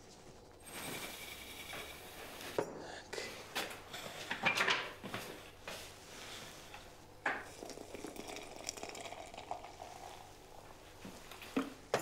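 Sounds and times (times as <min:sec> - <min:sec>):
water pouring into a glass jar: 0:07.5 - 0:10.3.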